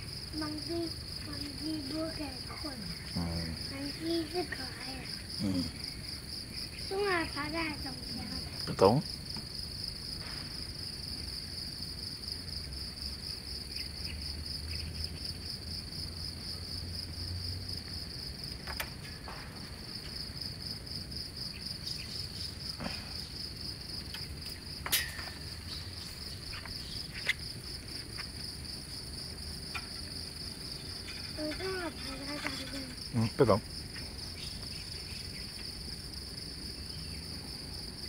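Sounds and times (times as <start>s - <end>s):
insect chorus trilling: 0.0s - 38.0s.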